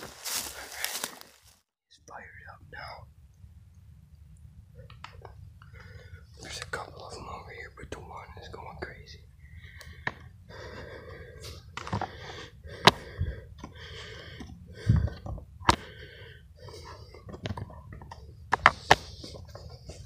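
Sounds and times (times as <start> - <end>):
footsteps crunching through dry leaves: 0.0 - 1.7.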